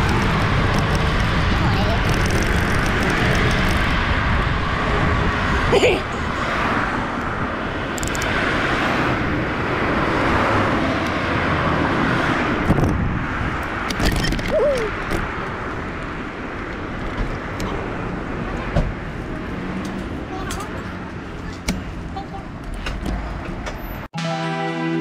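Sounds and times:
wind on microphone: 0.0 - 16.2
traffic noise: 0.0 - 25.0.

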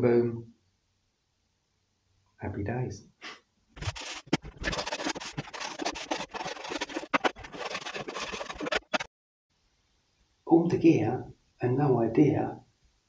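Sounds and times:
scratchy sanding strokes: 3.8 - 9.1.

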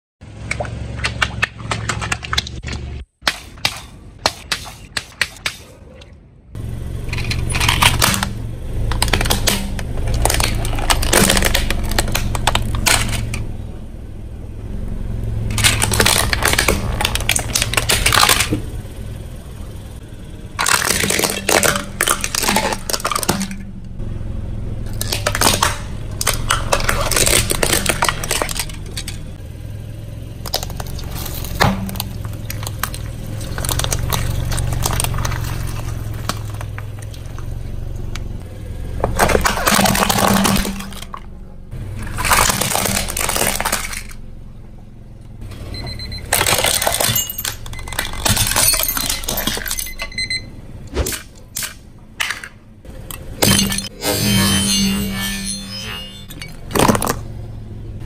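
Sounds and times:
car humming: 5.8 - 58.0
plastic cracking and snapping: 7.3 - 13.4, 15.5 - 18.6, 20.6 - 23.6, 24.9 - 29.2, 30.4 - 37.2, 42.1 - 44.2, 46.3 - 49.7.

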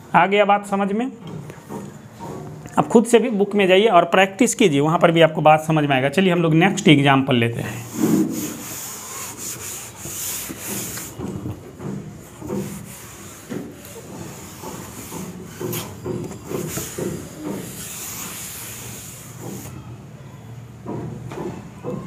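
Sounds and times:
cloth wiping a chalkboard: 7.7 - 19.8.

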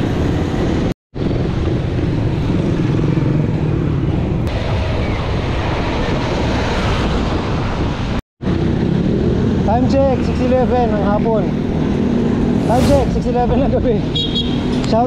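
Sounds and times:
road traffic: 0.0 - 15.0
wind rush on microphone: 4.1 - 9.6, 11.7 - 14.1.

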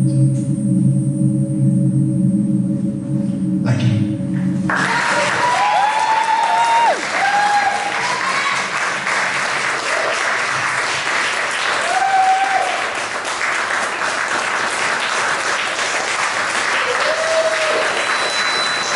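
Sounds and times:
audience cheering: 4.7 - 15.7, 16.4 - 18.9
audience applauding: 4.7 - 18.9.

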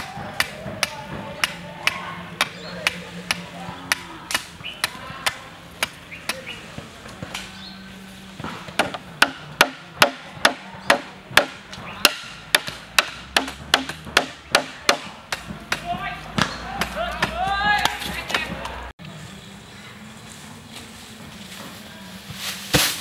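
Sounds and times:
hatchet knocking bamboo pole: 0.0 - 6.6, 8.4 - 18.6.

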